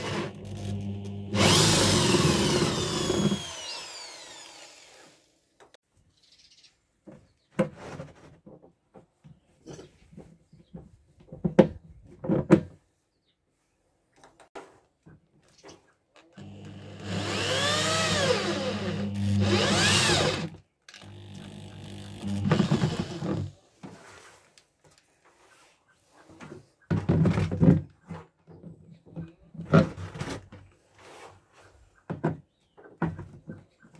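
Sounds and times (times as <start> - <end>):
electric drill boring plastic: 0.0 - 5.3, 16.4 - 23.5.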